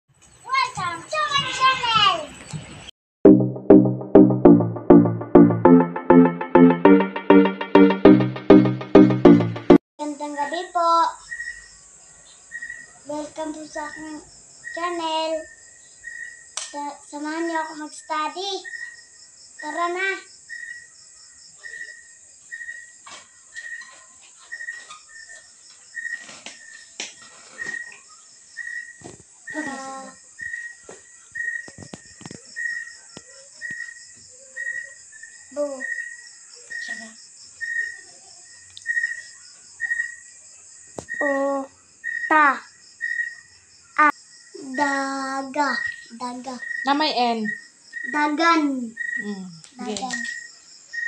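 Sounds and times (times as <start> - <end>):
insects trilling: 10.2 - 51.0.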